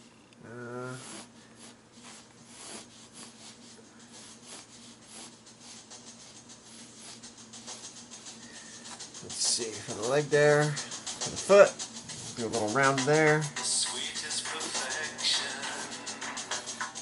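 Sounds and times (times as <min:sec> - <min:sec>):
person humming: 0:00.4 - 0:01.3, 0:12.2 - 0:16.9
pencil scratching on canvas: 0:01.0 - 0:13.4.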